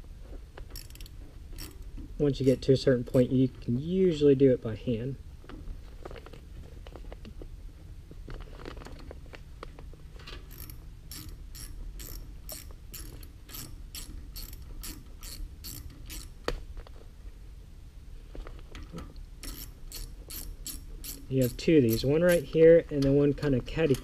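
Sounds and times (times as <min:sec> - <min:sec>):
ratchet tool clicking: 0:00.8 - 0:01.8, 0:10.5 - 0:16.4, 0:19.4 - 0:22.5.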